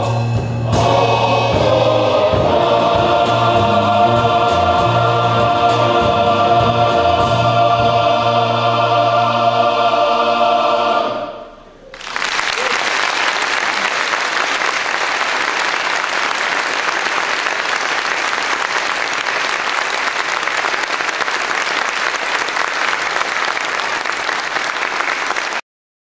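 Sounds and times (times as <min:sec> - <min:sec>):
audience applauding: 0:11.9 - 0:25.6.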